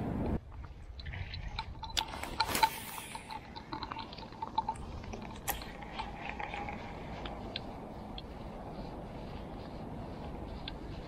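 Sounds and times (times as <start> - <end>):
faint steady whir: 0.0 - 11.0
reel clicks and creaks: 0.5 - 8.6.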